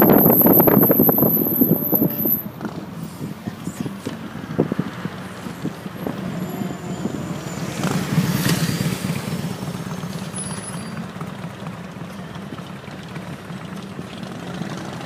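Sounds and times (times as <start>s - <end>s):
vehicle engines idling: 0.0s - 15.0s
motorcycle engine: 4.1s - 15.0s.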